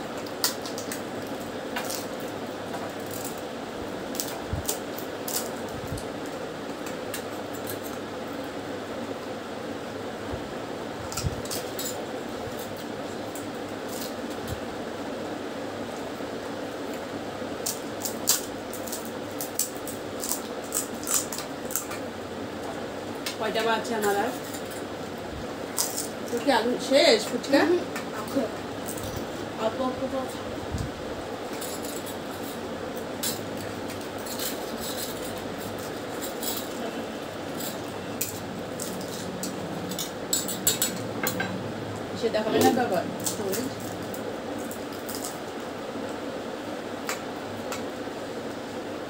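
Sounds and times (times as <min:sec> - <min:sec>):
steady low hum: 0:00.0 - 0:49.0
crisp shells cracking and crunching: 0:00.1 - 0:08.5, 0:11.1 - 0:14.7, 0:16.7 - 0:22.1, 0:25.6 - 0:26.5, 0:28.2 - 0:29.4, 0:31.5 - 0:41.0, 0:43.2 - 0:46.2
clinks on steel bowls and plates: 0:39.9 - 0:41.6.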